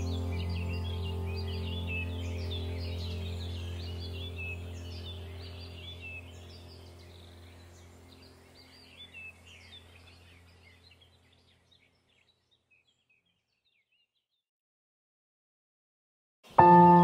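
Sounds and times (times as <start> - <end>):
low steady hum: 0.0 - 11.7
small birds chirping: 0.0 - 14.5.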